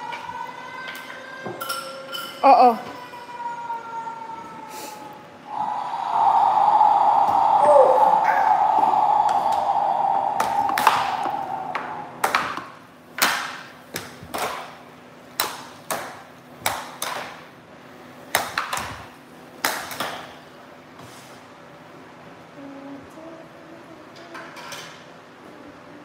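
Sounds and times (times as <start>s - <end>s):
faint steady hum: 0.0s - 13.2s, 21.6s - 26.0s
air hockey puck clacks: 12.2s - 17.5s, 18.3s - 20.4s.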